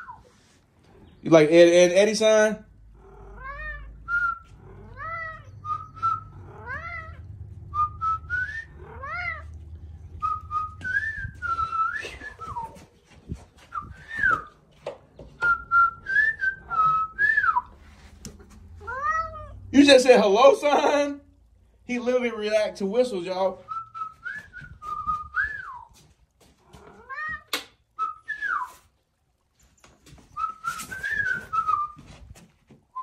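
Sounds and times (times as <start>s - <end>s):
cat meowing: 3.0s - 7.4s, 8.6s - 9.7s, 18.6s - 19.7s, 26.7s - 27.7s
person whistling: 10.2s - 12.8s, 13.7s - 14.5s, 15.4s - 17.7s, 23.7s - 26.0s, 28.0s - 28.8s, 30.4s - 32.0s.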